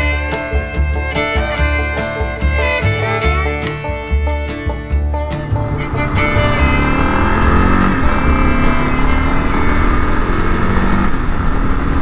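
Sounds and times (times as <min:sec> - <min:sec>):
motorcycle engine running: 0:05.5 - 0:12.0.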